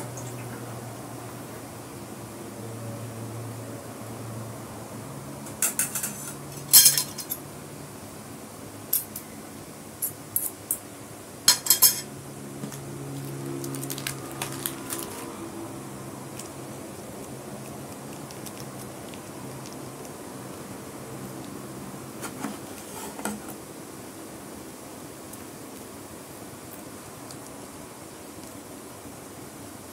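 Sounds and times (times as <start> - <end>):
cutlery clinking on glass and steel: 5.5 - 7.4, 11.5 - 12.1.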